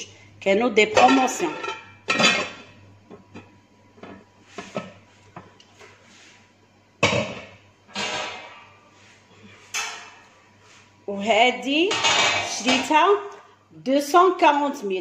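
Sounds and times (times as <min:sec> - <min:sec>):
dishware clicking and knocking: 0:11.9 - 0:13.0.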